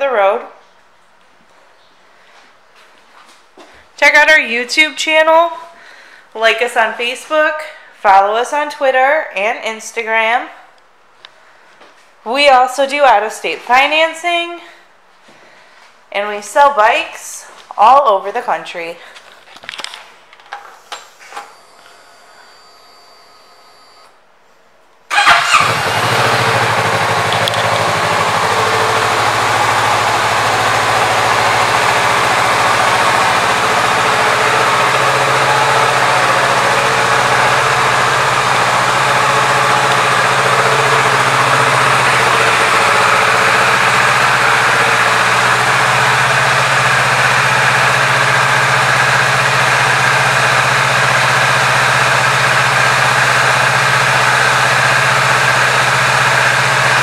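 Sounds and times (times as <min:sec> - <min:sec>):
motorcycle engine starting and idling: 0:25.1 - 0:57.0.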